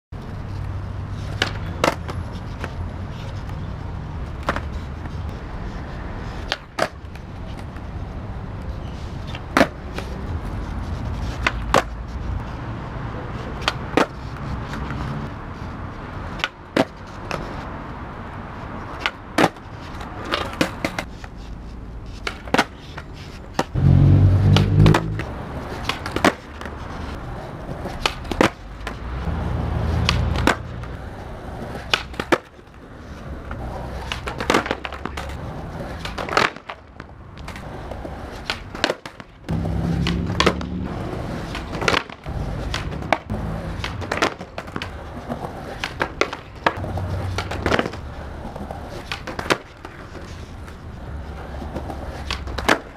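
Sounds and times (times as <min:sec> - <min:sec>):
skateboard wheels rolling on concrete: 0:00.1 - 0:52.9
skateboard deck clacking: 0:01.3 - 0:02.7, 0:06.4 - 0:07.8, 0:09.2 - 0:10.2, 0:13.6 - 0:14.8, 0:18.9 - 0:21.4, 0:22.1 - 0:23.7, 0:24.4 - 0:29.0, 0:29.9 - 0:52.9.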